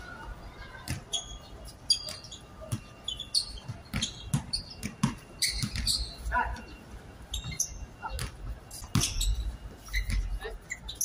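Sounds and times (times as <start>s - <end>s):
basketball bouncing on hard court: 3.6s - 6.1s.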